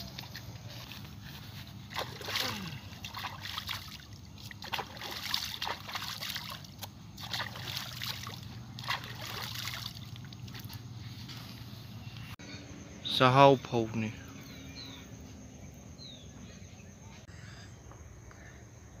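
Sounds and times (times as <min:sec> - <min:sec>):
water trickling: 0:00.0 - 0:10.9
hands splashing in water: 0:01.8 - 0:10.8.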